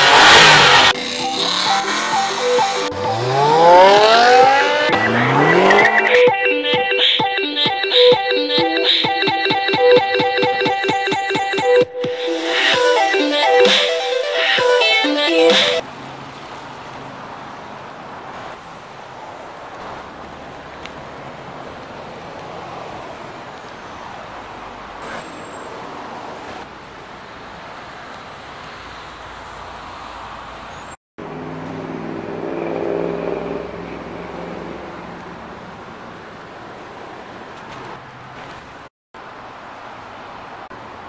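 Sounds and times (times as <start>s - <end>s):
car engine idling: 0.0s - 6.2s.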